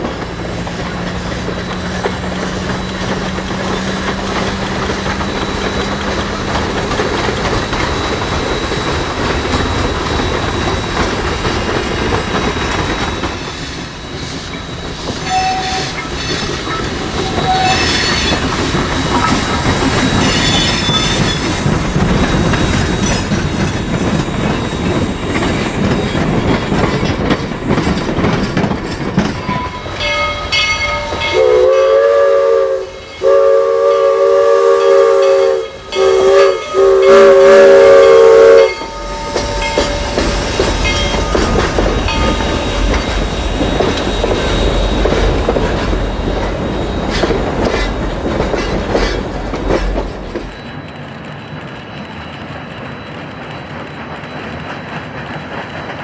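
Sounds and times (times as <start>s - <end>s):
train wheels clacking on rails: 0.0s - 56.0s
steam locomotive whistle: 15.2s - 18.5s, 29.5s - 43.1s.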